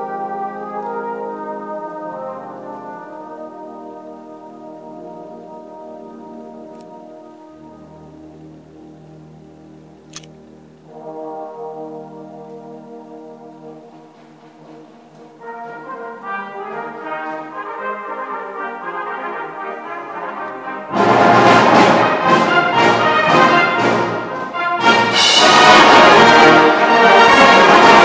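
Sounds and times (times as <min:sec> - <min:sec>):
brass band playing: 0:00.0 - 0:09.3, 0:10.5 - 0:28.0
percussion strikes: 0:20.4 - 0:28.0.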